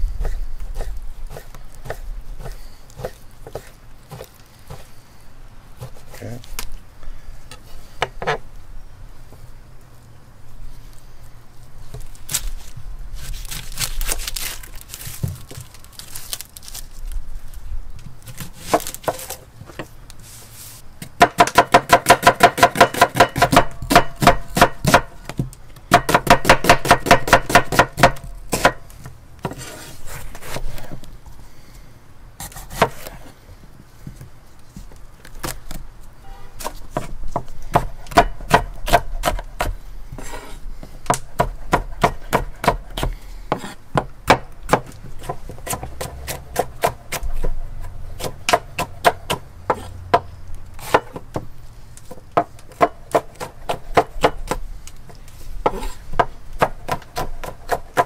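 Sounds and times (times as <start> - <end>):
knife chopping on wooden board: 0.2 - 4.9, 21.1 - 28.8, 32.4 - 33.1, 36.6 - 40.5, 41.1 - 51.4, 52.4 - 54.6, 55.6 - 58.0.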